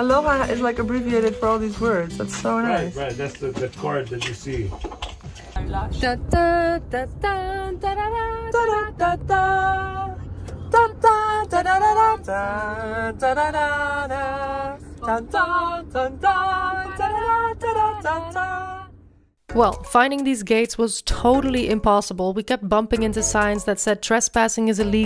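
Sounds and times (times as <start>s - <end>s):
woman singing unaccompanied: 0.0s - 2.9s, 5.6s - 18.9s, 19.5s - 25.0s
car cabin drone: 5.6s - 19.4s.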